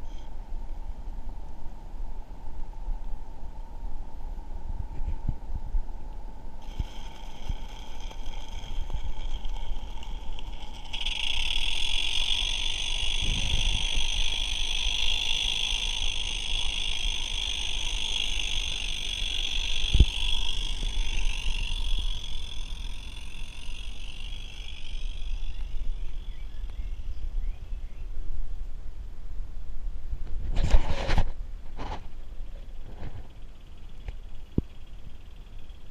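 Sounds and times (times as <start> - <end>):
model steam locomotive running: 6.6 - 26.8.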